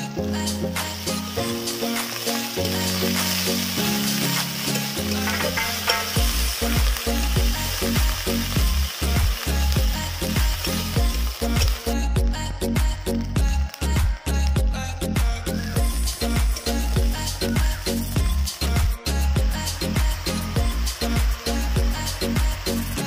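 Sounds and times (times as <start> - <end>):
background music: 0.0 - 23.0
onions sizzling in hot oil: 0.0 - 23.0
metal spatula scraping wok: 2.5 - 6.6.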